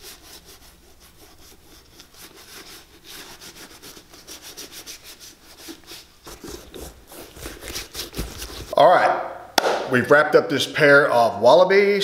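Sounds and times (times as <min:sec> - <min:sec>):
leather rubbing swishing: 0:00.0 - 0:08.8.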